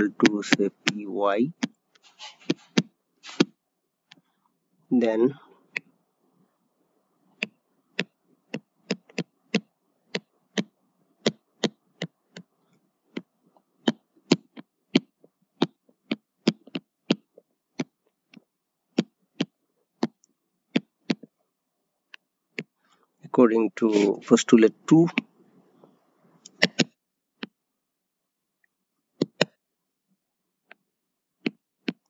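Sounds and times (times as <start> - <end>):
stylus tapping on tablet: 1.6 - 3.5, 7.4 - 12.5, 13.1 - 21.3, 22.6 - 22.8, 26.5 - 27.6, 29.2 - 29.6, 31.4 - 32.0.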